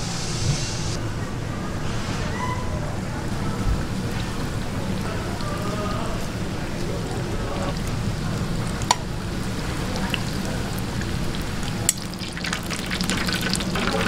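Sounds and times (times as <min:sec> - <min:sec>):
deep-frying oil sizzle: 0:03.8 - 0:14.0.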